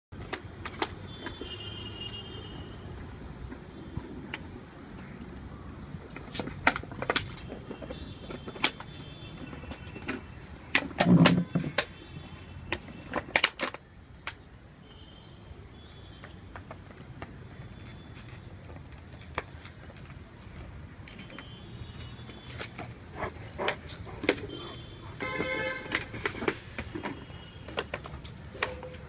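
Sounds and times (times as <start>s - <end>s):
plastic bottle crackling: 21.0s - 29.0s.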